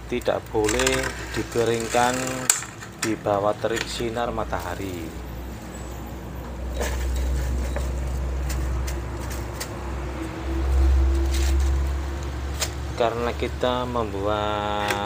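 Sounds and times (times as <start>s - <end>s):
sticks clicking on a metal rack: 0.2s - 4.1s.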